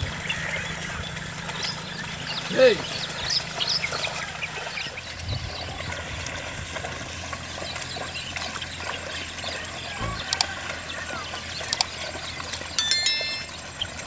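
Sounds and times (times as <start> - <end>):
muddy water sloshing: 0.2 - 12.7.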